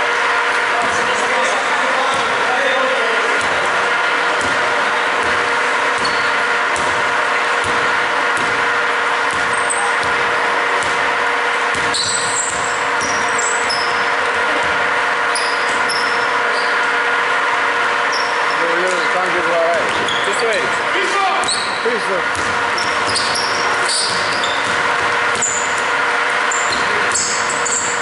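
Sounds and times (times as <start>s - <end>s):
steady hall hum: 0.0s - 28.0s
sneakers squeaking: 0.1s - 28.0s
basketball dribbling on wood floor: 4.4s - 7.0s, 7.6s - 11.1s, 11.7s - 14.8s, 22.3s - 25.9s.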